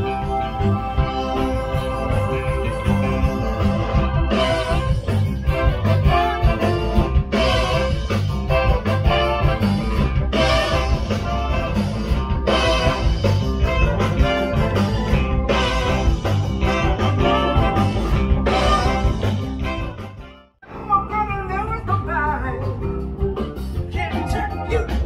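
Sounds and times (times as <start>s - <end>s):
live band with guitar and drums: 0.0s - 25.0s.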